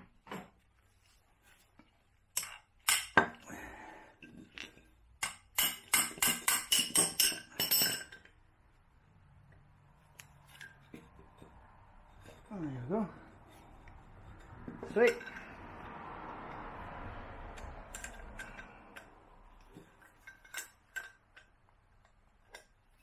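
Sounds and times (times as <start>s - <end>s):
spanner clinking on steel: 2.4s - 3.3s, 4.6s - 8.4s, 14.3s - 15.6s, 17.6s - 23.0s.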